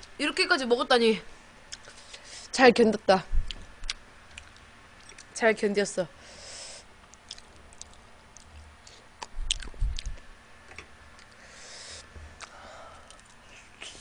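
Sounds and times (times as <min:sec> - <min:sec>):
chewing and mouth clicks: 0:03.5 - 0:05.4, 0:07.0 - 0:10.2, 0:11.1 - 0:11.4, 0:12.4 - 0:13.4.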